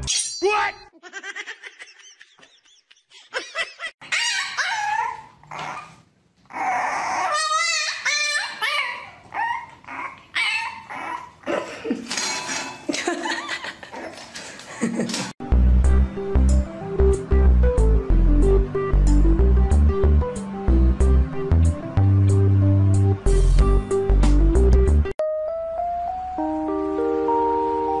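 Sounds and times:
puppy whining and yelping: 0:04.0 - 0:11.5.

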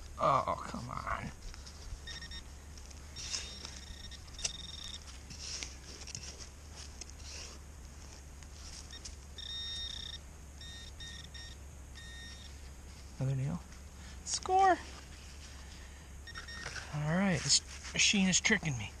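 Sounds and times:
metal detector beeping: 0:02.0 - 0:02.5, 0:03.1 - 0:05.2, 0:08.8 - 0:12.6, 0:16.2 - 0:17.1.

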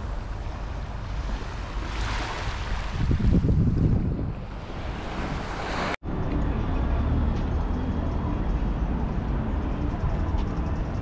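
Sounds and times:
waves washing onto beach: 0:00.0 - 0:06.0
wind buffeting microphone: 0:00.0 - 0:06.0.

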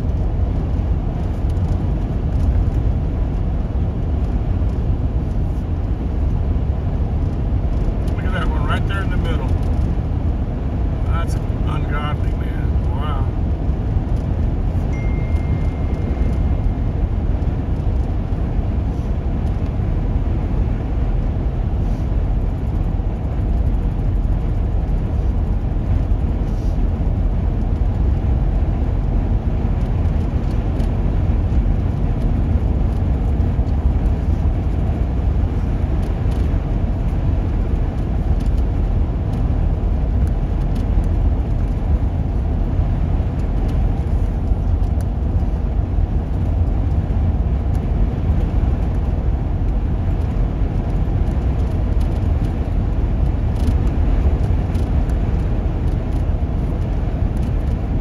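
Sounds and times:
road and engine rumble in vehicle: 0:00.0 - 0:58.0.

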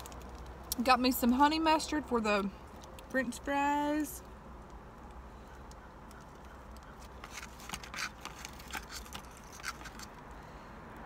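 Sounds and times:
food packaging crinkling: 0:06.8 - 0:10.2.

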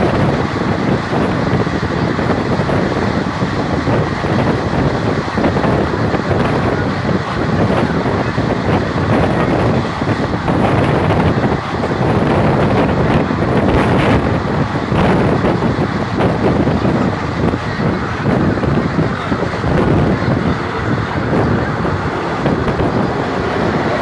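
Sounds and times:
train running noise: 0:00.0 - 0:24.0
wind buffeting microphone: 0:00.0 - 0:24.0.

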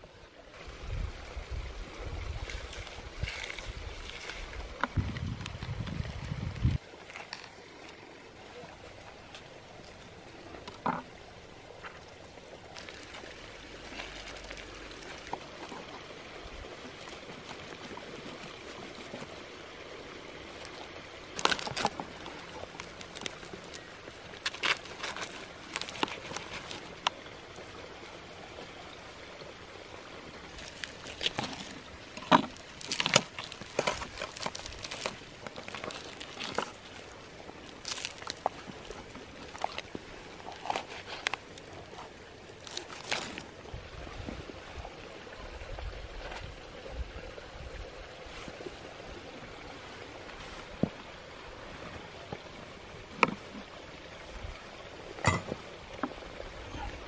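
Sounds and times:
creek running: 0:00.0 - 0:57.0
crisp skin crackling and crunching: 0:02.4 - 0:05.6, 0:12.7 - 0:15.6, 0:20.5 - 0:27.2, 0:30.5 - 0:43.6.

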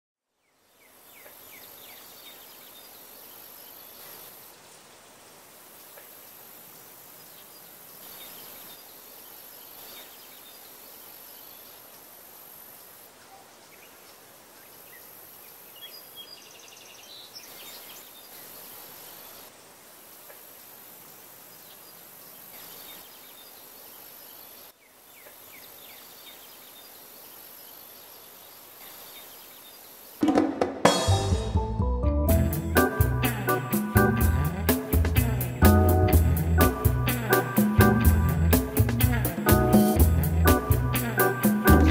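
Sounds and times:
room tone hiss: 0:00.3 - 0:31.2
high-pitched band: 0:30.2 - 0:41.9.

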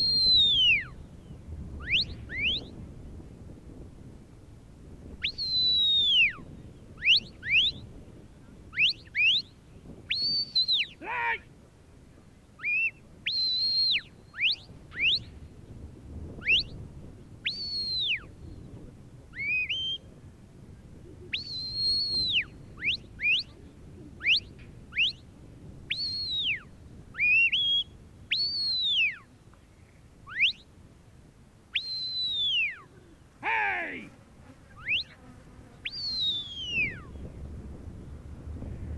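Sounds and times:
shrill whistled commands: 0:00.0 - 0:00.8, 0:05.3 - 0:06.3, 0:10.1 - 0:11.4, 0:12.6 - 0:15.2, 0:21.4 - 0:23.4, 0:30.3 - 0:30.6, 0:31.8 - 0:32.8, 0:33.4 - 0:34.1, 0:35.9 - 0:37.1.

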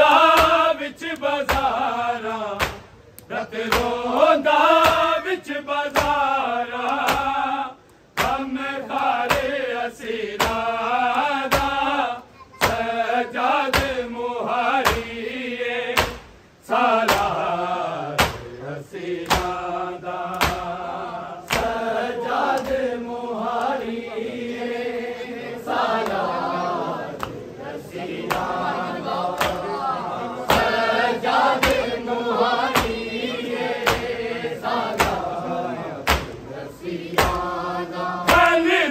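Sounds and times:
men chanting a lament: 0:00.0 - 0:38.9
hands slapping chests: 0:00.3 - 0:05.1, 0:05.9 - 0:07.4, 0:08.1 - 0:09.6, 0:10.4 - 0:11.9, 0:12.6 - 0:12.9, 0:13.7 - 0:14.0, 0:16.0 - 0:16.3, 0:17.0 - 0:17.4, 0:18.2 - 0:18.5, 0:19.2 - 0:19.6, 0:20.3 - 0:20.8, 0:21.4 - 0:21.8, 0:22.4 - 0:22.9, 0:27.1 - 0:27.4, 0:28.2 - 0:28.6, 0:29.2 - 0:29.8, 0:30.4 - 0:32.0, 0:32.6 - 0:33.0, 0:33.7 - 0:34.2, 0:34.9 - 0:35.4, 0:36.0 - 0:36.5, 0:37.1 - 0:37.5, 0:38.2 - 0:38.6.

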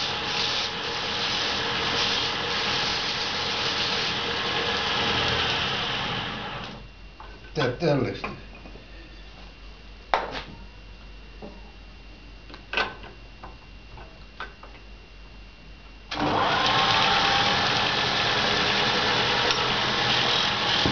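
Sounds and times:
wood lathe running: 0:00.0 - 0:06.8, 0:16.1 - 0:20.9.

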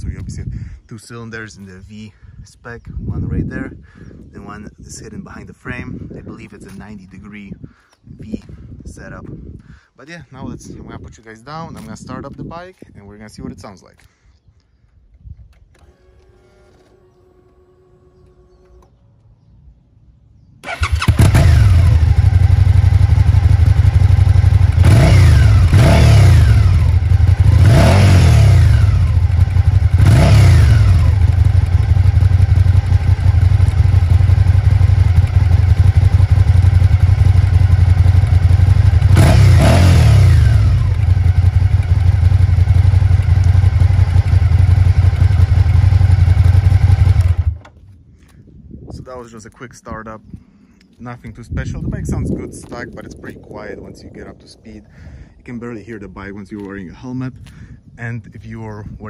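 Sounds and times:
motorcycle engine idling and revving: 0:20.6 - 0:48.0.

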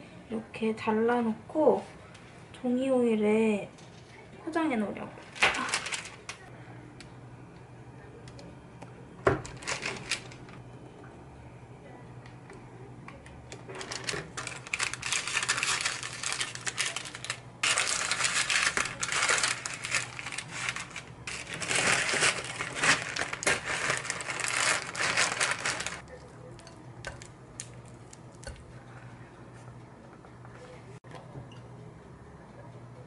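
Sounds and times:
baking paper crinkling: 0:05.2 - 0:06.5, 0:09.4 - 0:10.6, 0:13.5 - 0:28.2
plastic zipper bag rustling: 0:13.7 - 0:26.0.

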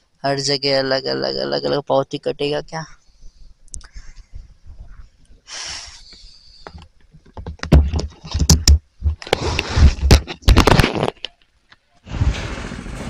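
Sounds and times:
rustling on microphone: 0:02.8 - 0:11.3
knocks and thumps on microphone: 0:06.7 - 0:11.1.

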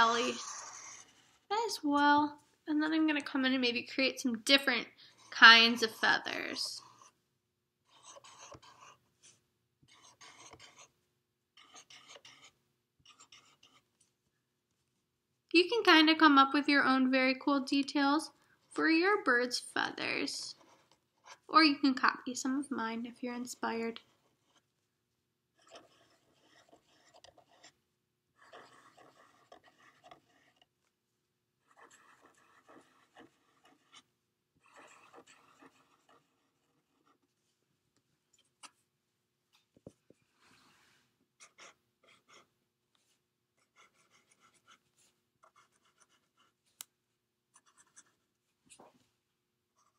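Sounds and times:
marker scratching on paper: 0:00.0 - 0:01.8, 0:05.1 - 0:07.2, 0:07.8 - 0:11.0, 0:11.6 - 0:14.1, 0:23.3 - 0:24.7, 0:25.6 - 0:27.8, 0:28.4 - 0:30.8, 0:31.6 - 0:37.5, 0:41.4 - 0:46.8, 0:47.5 - 0:49.0.

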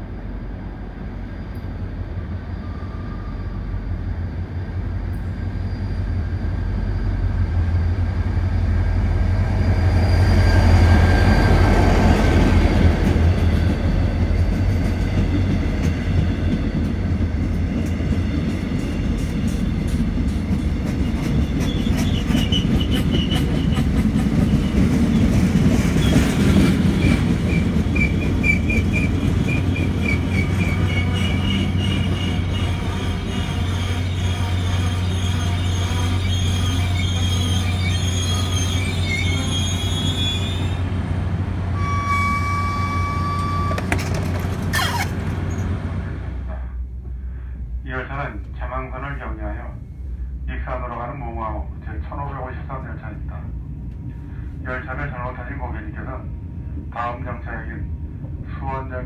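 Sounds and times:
passenger train rolling past: 0:00.0 - 0:59.0
train wheel clatter: 0:10.8 - 0:35.8, 0:43.3 - 0:45.8
wheels squealing: 0:21.0 - 0:25.3, 0:25.9 - 0:40.8, 0:41.8 - 0:45.8.

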